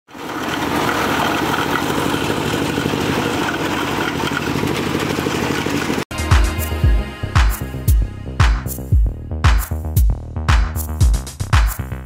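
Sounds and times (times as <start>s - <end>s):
engine running with fast pulse: 0.1s - 9.7s.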